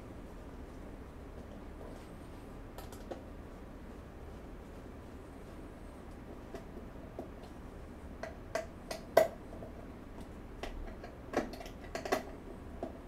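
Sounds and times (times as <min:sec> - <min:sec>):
furniture parts clicking and knocking: 0:10.6 - 0:13.0.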